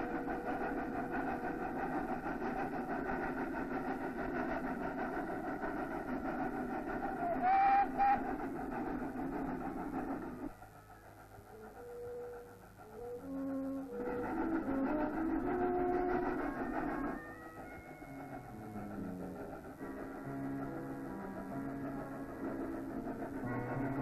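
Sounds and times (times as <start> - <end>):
steam locomotive rumbling: 0.0 - 24.0
steam whistle blasts: 7.3 - 8.3, 10.9 - 18.8.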